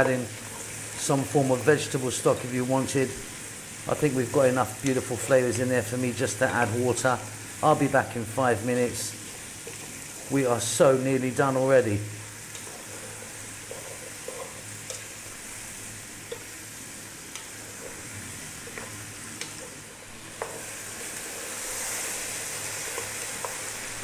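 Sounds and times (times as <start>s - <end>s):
vegetables sizzling in oil: 0.0s - 24.0s
wooden spoon scraping pan: 12.6s - 15.0s.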